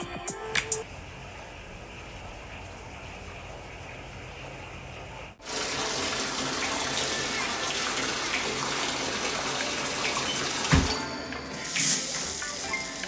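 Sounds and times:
shower spray hissing: 0:11.5 - 0:13.0.

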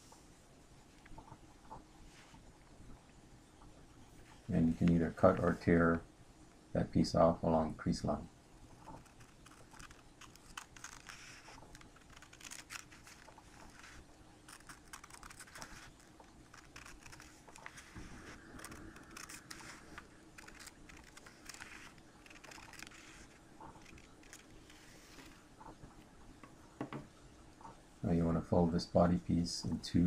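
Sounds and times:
scissors cutting paper: 0:08.8 - 0:25.4
paper crunching: 0:08.8 - 0:25.5.

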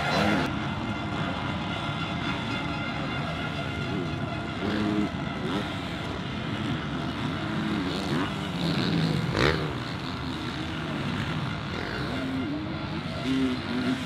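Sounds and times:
motocross bikes revving: 0:00.0 - 0:14.0.

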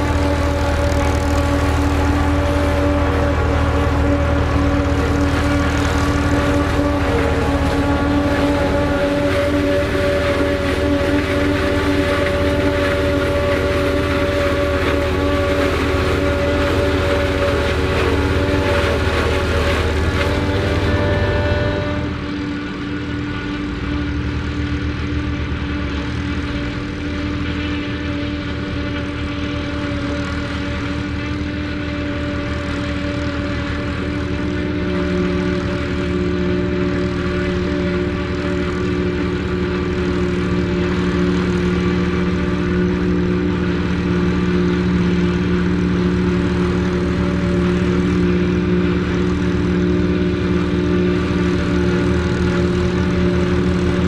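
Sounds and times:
forage harvester chopping corn: 0:00.0 - 0:54.0
second tractor engine running: 0:00.0 - 0:54.0
tractor engine under load: 0:00.0 - 0:54.0.

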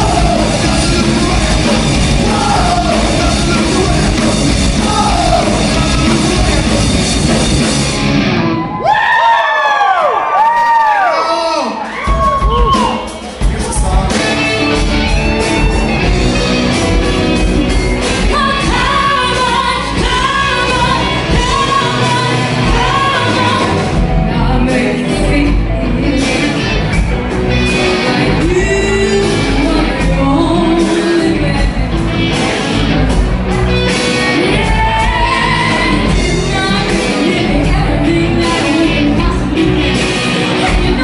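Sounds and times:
woman singing: 0:00.0 - 0:06.9, 0:18.2 - 0:26.6, 0:28.0 - 0:32.0, 0:34.4 - 0:41.0
electric bass: 0:00.0 - 0:08.9, 0:12.1 - 0:41.0
electric guitars: 0:00.0 - 0:10.5, 0:11.8 - 0:41.0
drums: 0:00.0 - 0:41.0.

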